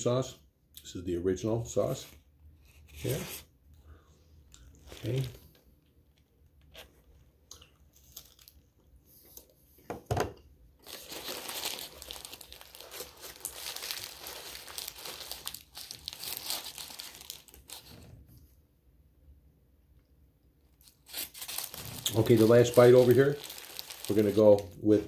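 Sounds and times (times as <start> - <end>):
paper wrapper crinkling: 4.7 - 5.6, 7.9 - 8.7, 10.8 - 18.1, 20.8 - 25.0.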